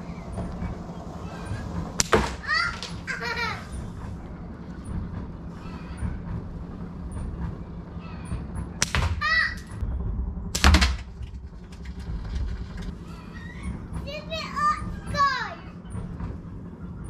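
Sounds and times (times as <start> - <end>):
slingshot cracks: 2.0 - 2.4, 8.8 - 9.2, 10.5 - 11.1.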